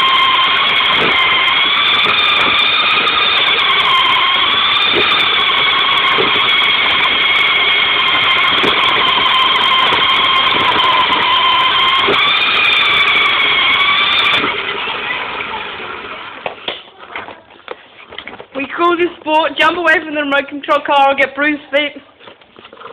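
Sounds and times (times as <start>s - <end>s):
toy car electric motor whining: 0.0s - 16.5s.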